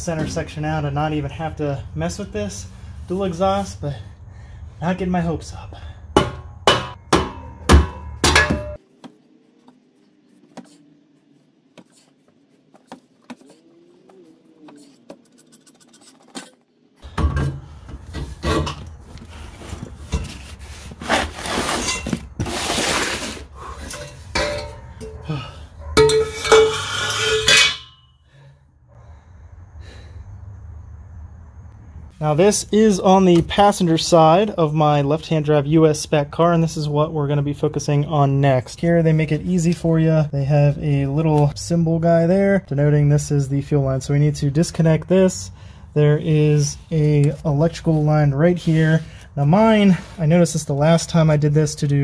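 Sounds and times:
rubber mallet striking exhaust pipe: 6.1 - 8.8.

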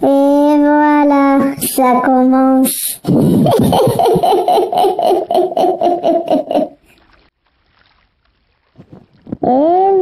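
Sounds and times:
cartoon character laughing: 3.2 - 6.8.

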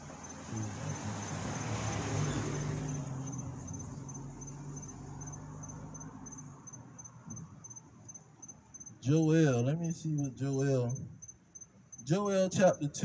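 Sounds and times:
crickets chirping: 0.0 - 12.1.

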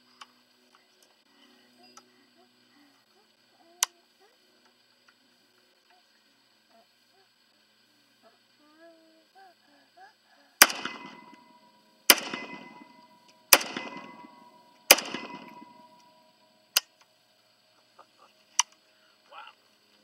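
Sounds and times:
pistol shots with ringing echo: 10.6 - 16.9
quieter short crack: 10.6 - 17.0.

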